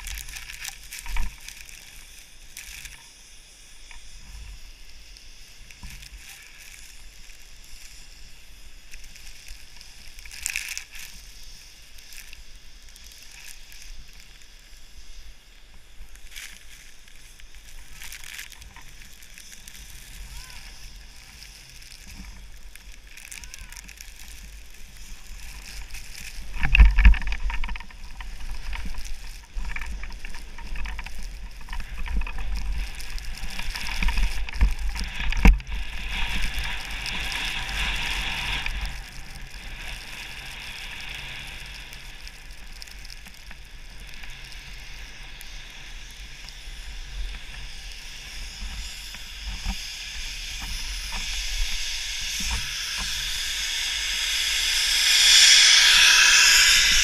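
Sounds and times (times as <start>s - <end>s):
skis scraping over snow: 0.0s - 57.0s
wind rumble on camera: 0.0s - 57.0s
snowmaking gun hissing: 1.7s - 26.6s, 43.7s - 57.0s.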